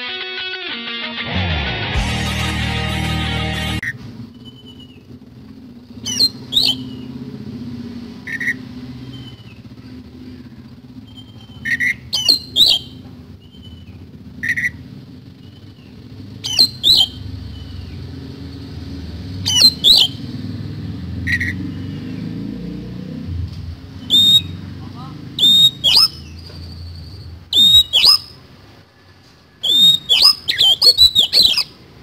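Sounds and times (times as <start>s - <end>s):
bird whistling: 4.3s - 5.1s, 6.0s - 7.2s, 8.2s - 9.7s, 11.0s - 14.8s, 15.4s - 20.4s, 21.2s - 22.2s, 23.9s - 24.6s, 25.4s - 28.4s, 29.6s - 31.8s
bird giving harsh calls: 6.0s - 7.2s, 8.2s - 18.0s, 18.7s - 20.4s, 21.2s - 22.3s, 23.9s - 28.4s, 29.6s - 31.8s.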